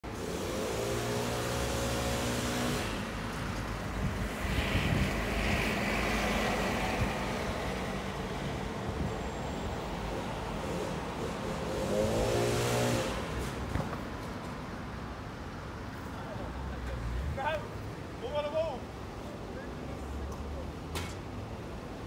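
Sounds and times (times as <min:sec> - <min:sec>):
bus driving past: 0:00.1 - 0:14.9.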